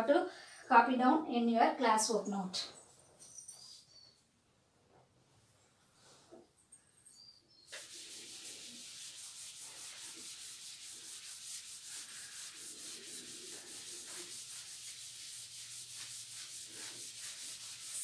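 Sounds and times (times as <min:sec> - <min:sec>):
cloth wiping chalkboard: 0:07.7 - 0:18.0.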